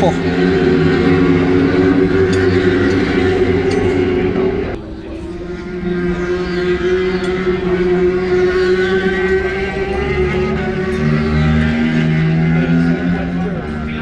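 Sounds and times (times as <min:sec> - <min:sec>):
muffled motorcycle engines droning: 0:00.0 - 0:14.0.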